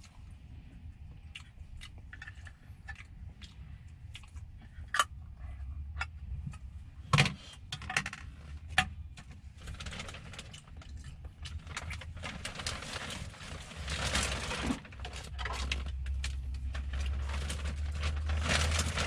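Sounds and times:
low steady rumble: 0:00.0 - 0:19.0
packaging crinkling: 0:09.6 - 0:19.0.

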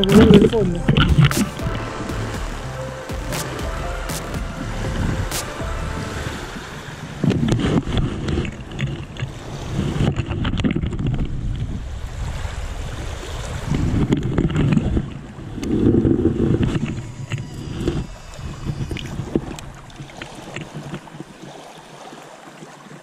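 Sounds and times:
small waves washing ashore: 0:00.0 - 0:23.0
wind buffeting microphone: 0:04.5 - 0:21.5.

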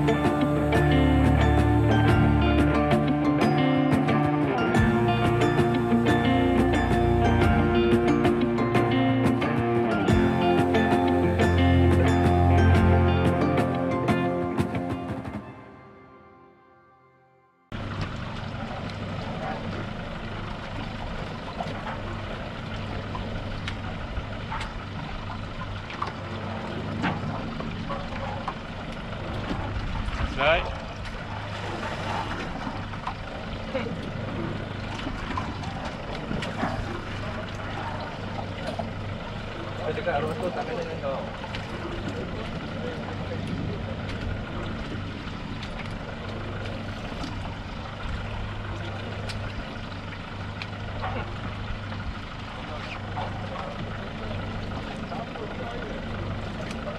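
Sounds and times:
boat engine running: 0:00.0 - 0:16.8, 0:17.7 - 0:56.9
water lapping against hull: 0:17.7 - 0:56.9.

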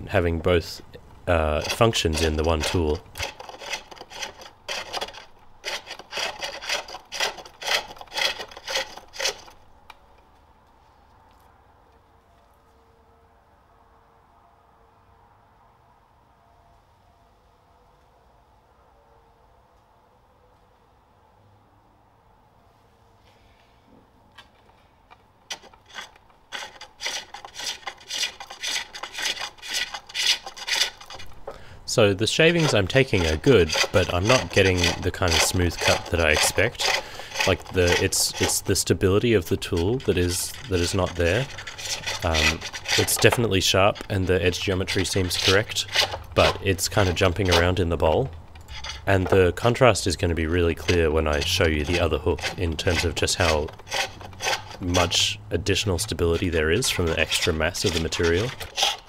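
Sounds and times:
hook tool scraping wood: 0:01.3 - 0:10.0, 0:24.4 - 0:59.0.

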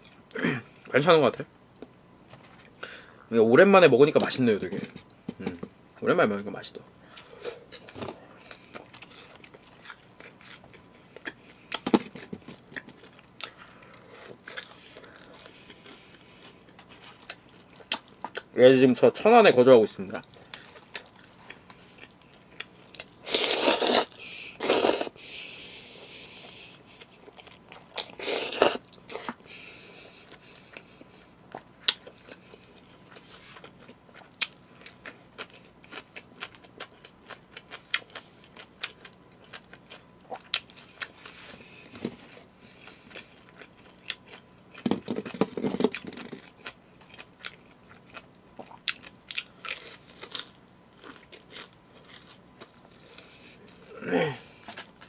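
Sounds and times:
wet chewing and crunching: 0:07.1 - 0:18.5, 0:20.2 - 0:25.1, 0:26.4 - 0:55.0
slurping noodles: 0:23.2 - 0:25.2.

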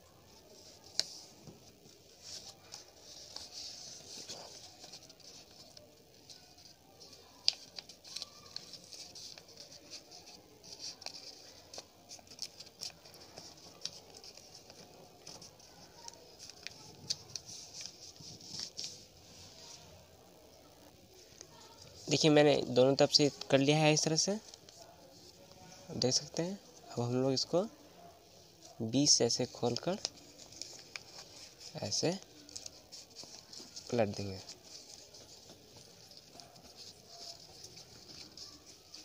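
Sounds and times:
paper rustling and crinkling: 0:00.3 - 0:20.0, 0:28.6 - 0:39.0.

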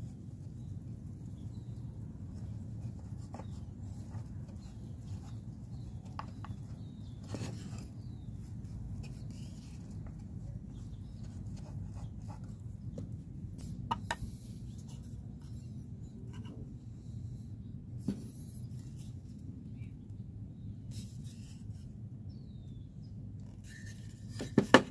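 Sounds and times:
low background hum: 0:00.0 - 0:24.9.

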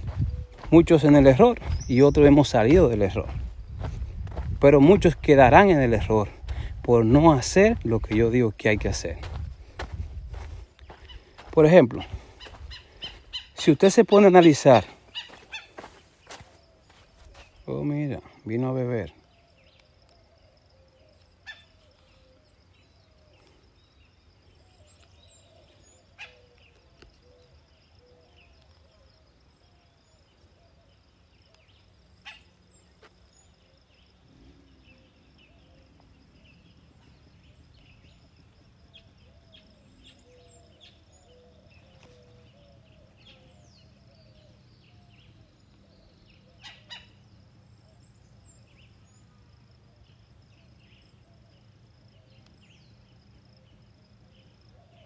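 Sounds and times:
birds chirping: 0:00.0 - 0:55.0
insect buzz: 0:14.8 - 0:17.6.

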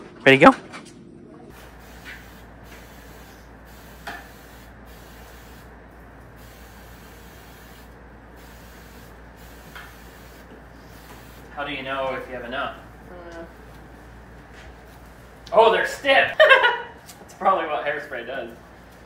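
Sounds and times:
aerosol can spraying hiss: 0:01.6 - 0:05.7, 0:06.4 - 0:11.5.

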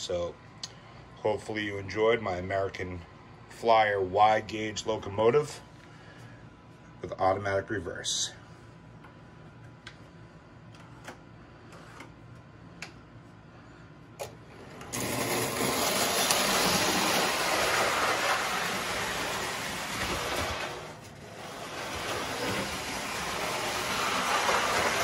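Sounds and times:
toy train running on track: 0:14.9 - 0:25.0.

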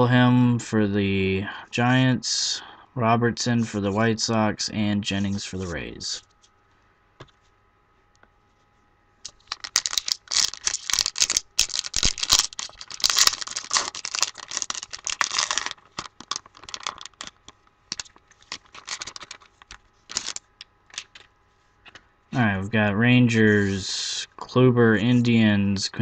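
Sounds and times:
cards clicking: 0:09.2 - 0:21.3
wrapper tearing and crinkling: 0:09.2 - 0:21.3.

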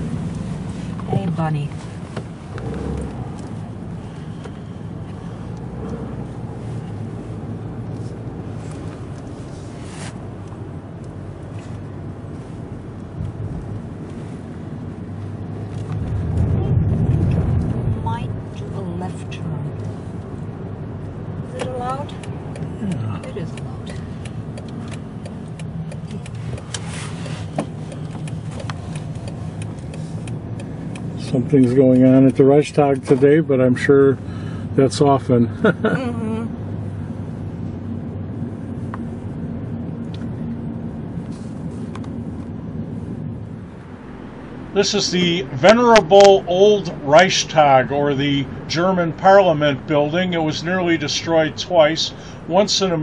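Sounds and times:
car engine and road rumble: 0:00.0 - 0:53.0
turn signal ticking: 0:00.1 - 0:09.4, 0:17.1 - 0:33.7.

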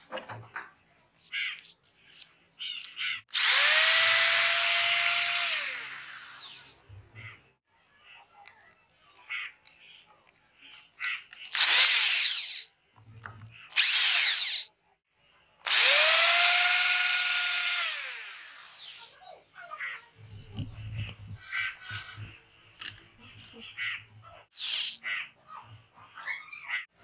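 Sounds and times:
power drill whining: 0:03.3 - 0:06.8, 0:11.5 - 0:12.7, 0:13.7 - 0:14.7, 0:15.7 - 0:19.1.

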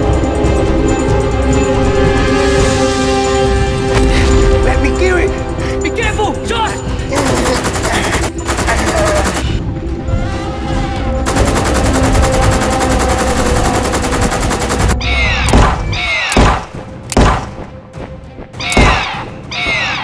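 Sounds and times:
background music: 0:00.0 - 0:20.0
rapid automatic gunfire: 0:07.2 - 0:09.6, 0:11.3 - 0:15.0.

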